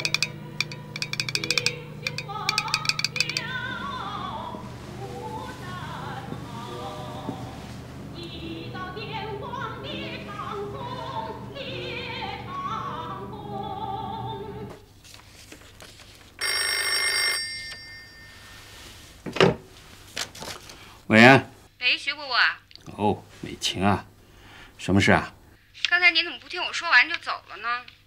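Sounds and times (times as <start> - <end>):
telephone bell ringing: 0.0 - 3.7, 16.4 - 19.1
telephone handset clack: 0.0 - 3.7
music with wavering singing voice: 0.0 - 14.8.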